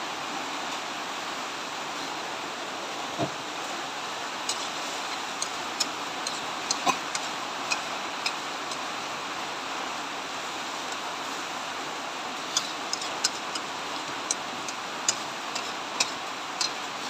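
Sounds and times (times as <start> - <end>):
steady hiss of frying: 0.0 - 17.0
metal spatula scraping wok: 12.5 - 13.6.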